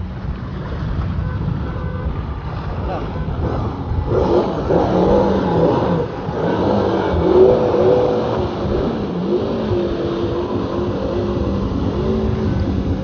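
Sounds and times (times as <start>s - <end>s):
wind and water rushing: 0.0s - 13.0s
jet ski engine revving: 2.9s - 13.0s.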